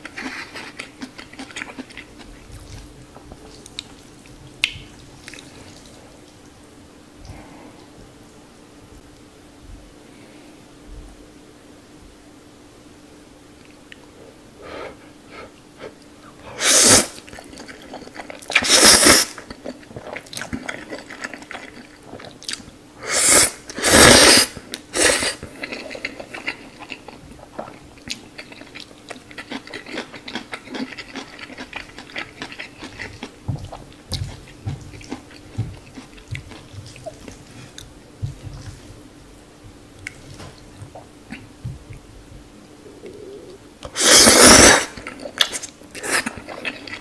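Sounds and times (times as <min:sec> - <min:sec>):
wet chewing: 0:00.0 - 0:06.4, 0:16.8 - 0:22.7, 0:23.7 - 0:39.0, 0:43.0 - 0:47.0
noodle slurping: 0:16.6 - 0:17.8, 0:18.5 - 0:19.4, 0:23.0 - 0:26.8, 0:43.1 - 0:47.0.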